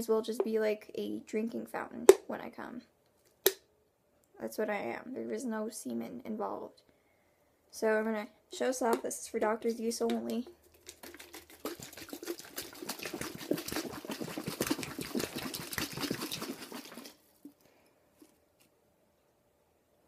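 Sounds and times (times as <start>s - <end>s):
plastic bottle crackling: 10.6s - 17.6s
water squirting and spattering: 10.8s - 17.3s.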